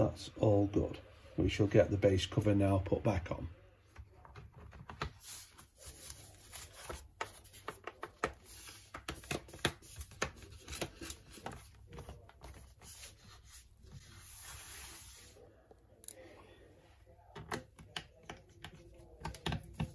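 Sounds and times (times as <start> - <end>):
hands rubbing on panel: 12.5 - 15.4.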